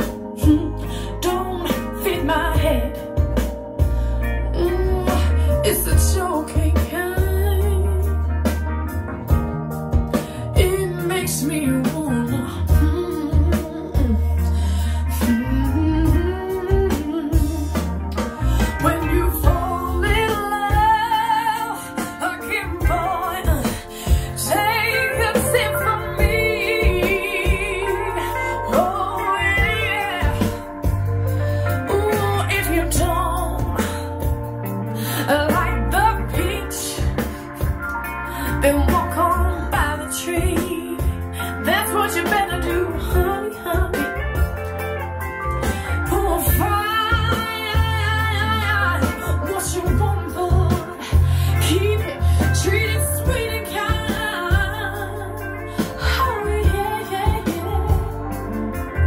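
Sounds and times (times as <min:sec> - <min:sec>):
female vocal: 0:00.0 - 0:08.3, 0:10.1 - 0:44.6, 0:45.6 - 0:58.8
heavy bass: 0:00.0 - 0:59.0
soul music over speakers: 0:00.0 - 0:59.0
steady drum beat: 0:15.2 - 0:21.3, 0:22.0 - 0:34.8, 0:35.5 - 0:38.1.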